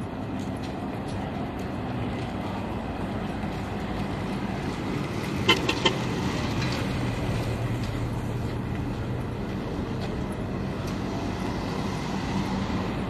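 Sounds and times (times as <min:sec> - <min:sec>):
city traffic hum: 0:00.0 - 0:13.0
car horn toots: 0:05.5 - 0:06.0.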